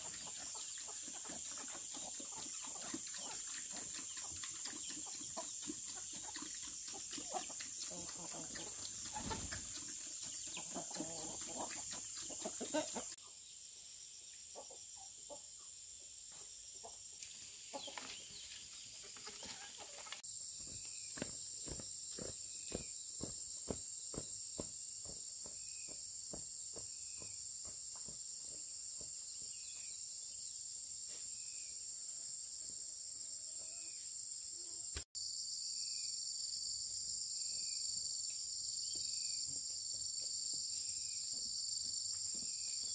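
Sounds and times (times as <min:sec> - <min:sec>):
chickens clucking: 0:00.0 - 0:13.2, 0:16.3 - 0:20.3
insects droning: 0:04.2 - 0:42.9.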